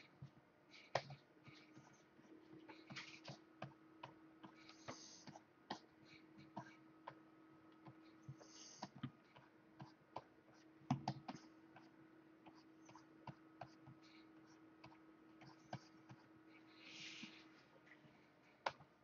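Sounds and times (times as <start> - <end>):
quiet steady hum: 0.0 - 19.0
keyboard clicks and taps: 10.9 - 11.9.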